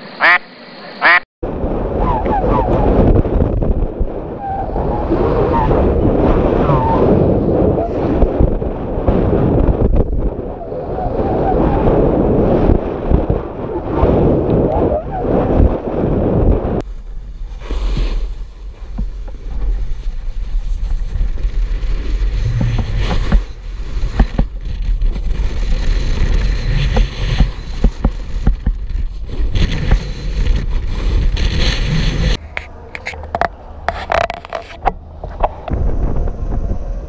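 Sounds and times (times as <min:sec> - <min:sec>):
wind buffeting microphone: 0:01.4 - 0:37.0
snowboard scraping on snow: 0:15.3 - 0:33.1.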